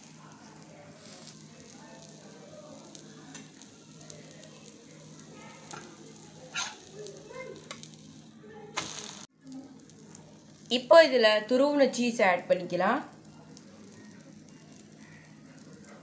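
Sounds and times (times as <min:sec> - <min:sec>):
omelette sizzling in oil: 0:00.0 - 0:16.0
spatula scraping a pan: 0:06.5 - 0:06.9.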